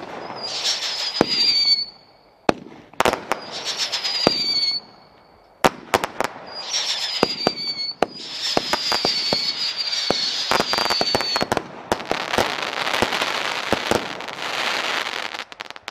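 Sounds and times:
firework whistles falling in pitch: 0:00.0 - 0:02.4, 0:03.3 - 0:05.4, 0:06.4 - 0:11.6
firework bangs and pops: 0:00.0 - 0:05.0, 0:05.6 - 0:15.9
firework crackle: 0:00.0 - 0:15.9.

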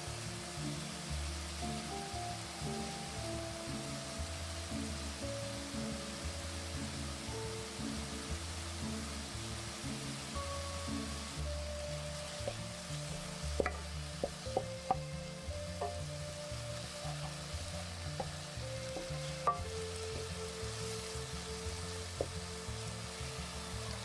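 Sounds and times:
background music: 0:00.0 - 0:24.0
vegetables sizzling in frying pan: 0:00.0 - 0:24.0
utensil clicking against pan: 0:13.6 - 0:16.1, 0:18.1 - 0:20.4.

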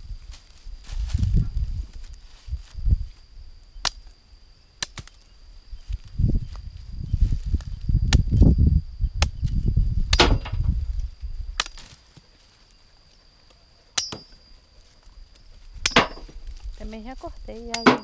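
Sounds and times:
machete chopping stems: 0:10.1 - 0:10.6, 0:14.0 - 0:14.4, 0:17.7 - 0:18.0.

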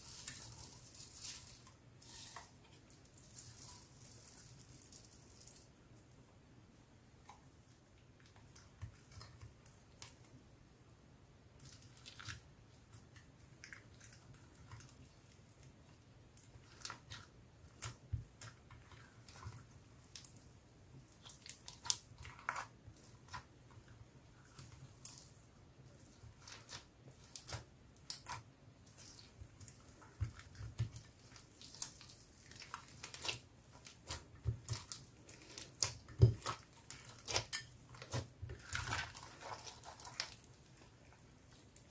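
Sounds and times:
sticky crackles and wet pops: 0:11.6 - 0:41.9.

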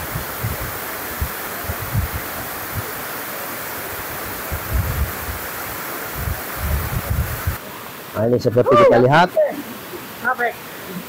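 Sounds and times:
wind buffeting microphone: 0:00.0 - 0:02.9, 0:04.2 - 0:07.6
waterfall rushing: 0:00.0 - 0:11.0.

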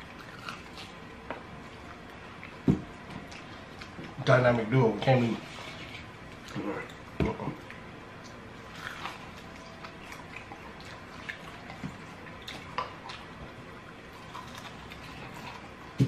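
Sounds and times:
chewing with wet smacks: 0:00.0 - 0:04.2, 0:06.2 - 0:16.0.

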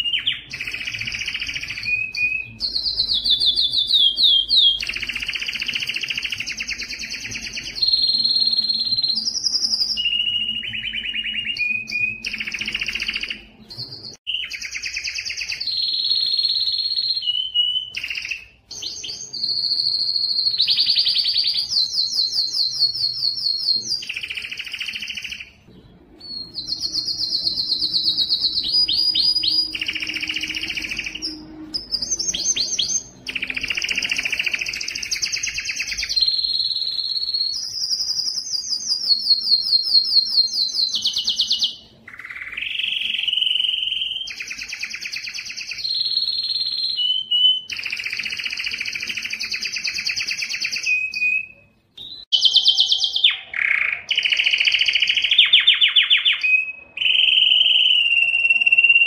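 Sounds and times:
canary singing trills: 0:00.0 - 0:59.0.

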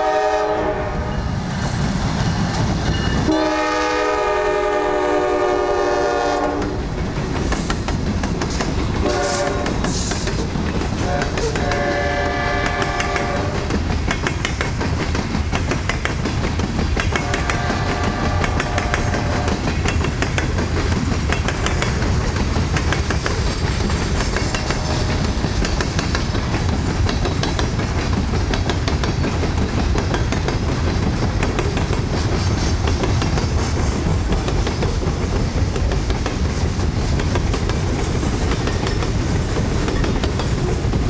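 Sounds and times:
locomotive horn: 0:00.0 - 0:01.3, 0:03.2 - 0:06.8, 0:09.0 - 0:09.8, 0:11.0 - 0:13.7, 0:17.2 - 0:19.6, 0:24.6 - 0:25.3
freight train rumbling past: 0:00.0 - 0:41.0
wheels clicking over rail joints: 0:06.4 - 0:41.0.

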